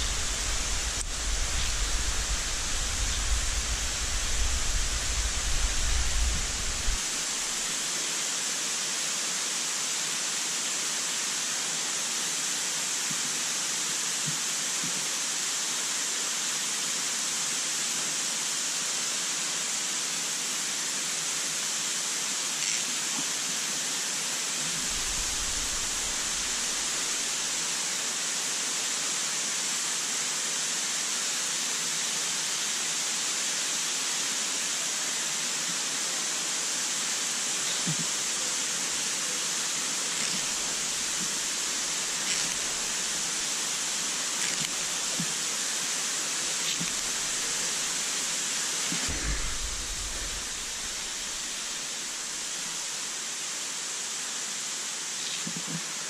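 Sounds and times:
steady rushing hiss: 0.0 - 56.0
low rumble: 49.1 - 52.4.

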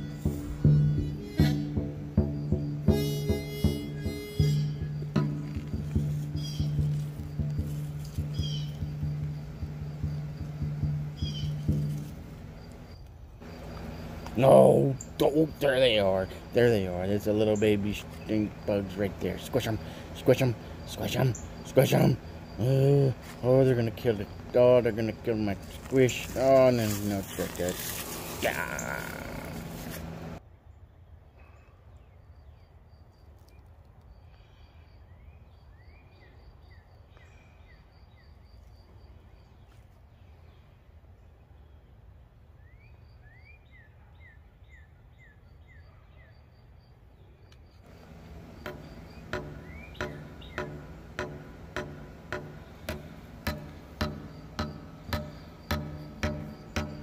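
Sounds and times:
background music with plucked beat: 0.0 - 12.8, 47.9 - 57.0
high insect-like call: 0.0 - 30.2, 47.4 - 57.0
birds chirping: 0.0 - 30.4, 47.4 - 57.0.

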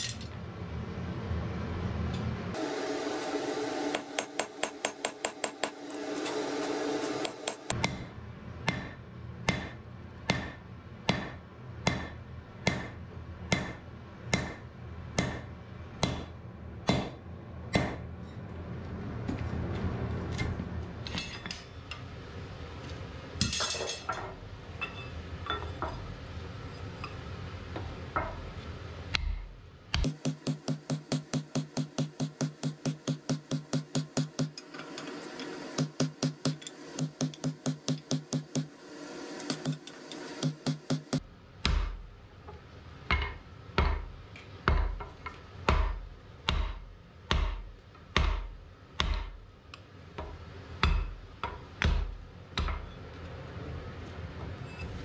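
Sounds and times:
hammer striking metal punch: 3.9 - 6.0, 7.2 - 18.1, 29.2 - 34.6, 35.8 - 38.8, 39.5 - 42.0, 45.7 - 49.4, 50.8 - 51.2.

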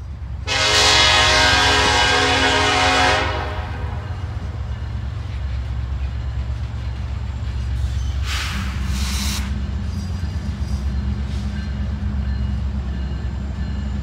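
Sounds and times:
locomotive engines rumbling: 0.0 - 14.0
locomotive air horn blast: 0.4 - 4.1.

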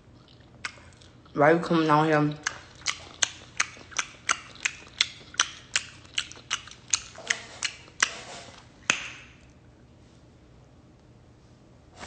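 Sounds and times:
wet lip smacks from chewing: 0.2 - 1.4, 2.3 - 9.4.

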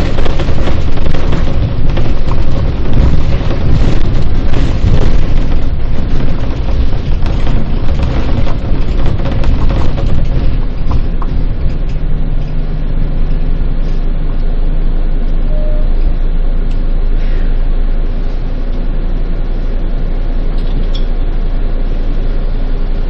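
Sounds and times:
rattling knocks: 0.0 - 12.1
bus engine drone: 0.0 - 23.0
road rumble: 0.0 - 23.0.

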